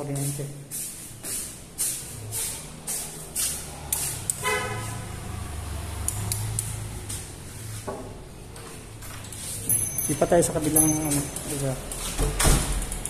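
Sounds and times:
passing vehicle rumble: 1.6s - 9.8s
vehicle horn toot: 4.4s - 5.2s.

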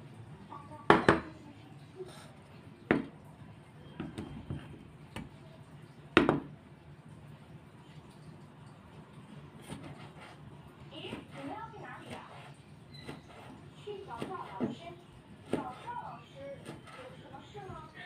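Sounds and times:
knife knocking on cutting board: 2.9s - 3.1s, 6.2s - 6.5s.

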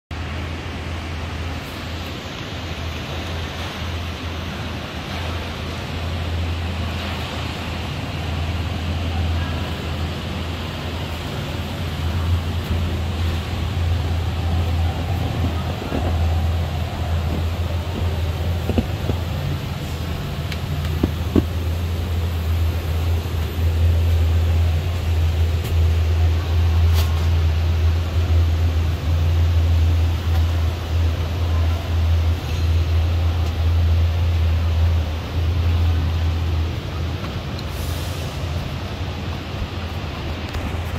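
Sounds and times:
air blower humming: 0.7s - 31.2s.

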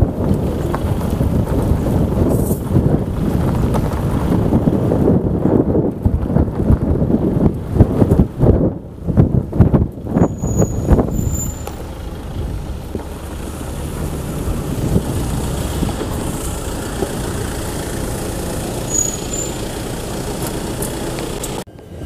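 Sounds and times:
low thumps: 0.0s - 17.8s
vehicle engine and road traffic: 0.0s - 22.0s.

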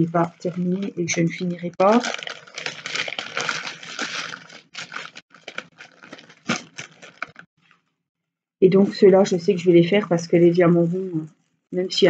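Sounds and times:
plastic bag crinkling: 0.0s - 7.5s.

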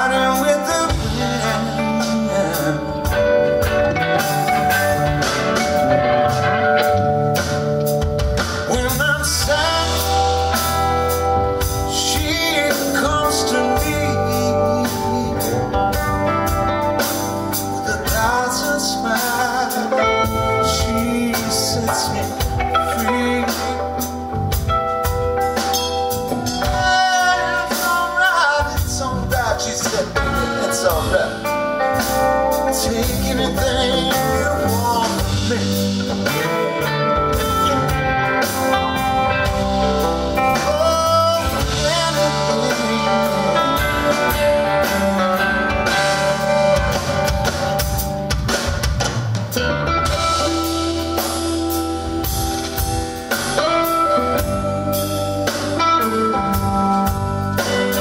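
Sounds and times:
man singing: 0.0s - 7.4s, 8.4s - 48.1s
drum kit: 0.0s - 58.0s
electric guitar lead lines: 0.0s - 58.0s.

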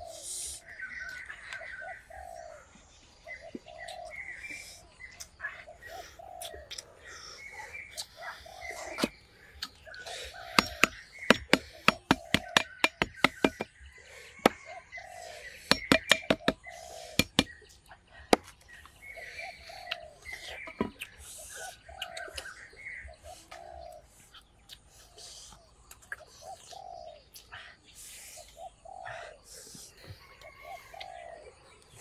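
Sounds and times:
birds calling: 0.0s - 32.0s
sharp knocks: 10.6s - 13.7s, 15.7s - 16.6s.

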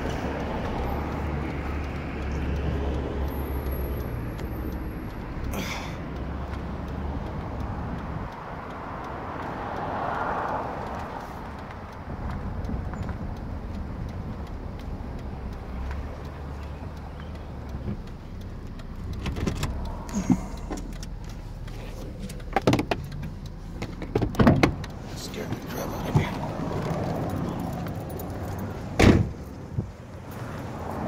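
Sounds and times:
traffic noise: 0.0s - 31.0s
vehicle passing: 0.0s - 31.0s
sharp knocks and clicks: 10.8s - 30.0s
car engine running: 10.8s - 30.3s.

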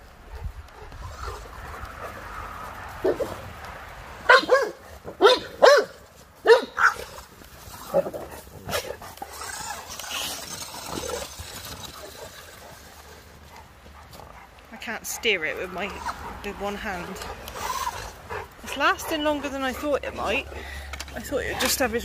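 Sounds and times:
dog barking: 4.3s - 7.0s.

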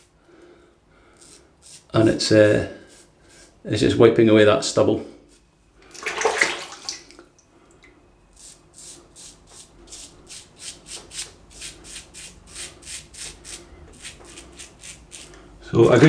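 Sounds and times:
razor scraping stubble: 1.2s - 3.6s, 8.3s - 16.0s.

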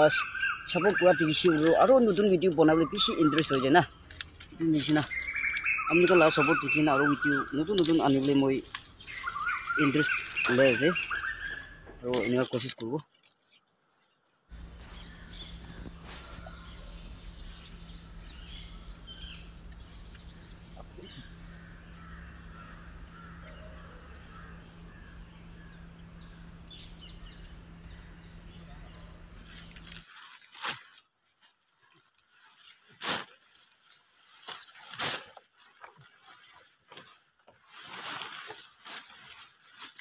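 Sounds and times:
leaves rustling in cloth bag: 0.0s - 23.9s, 29.0s - 40.0s
small birds chirping: 0.0s - 30.7s
steady low hum: 14.4s - 30.3s.

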